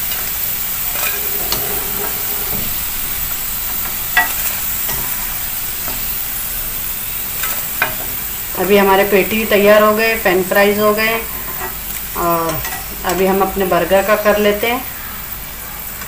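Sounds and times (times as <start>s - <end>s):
fries sizzling in oil: 4.2s - 16.0s.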